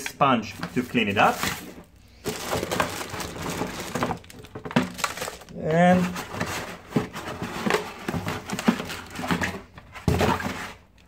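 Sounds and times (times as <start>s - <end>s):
cardboard box scraping and rustling: 0.6s - 4.2s, 5.9s - 10.8s.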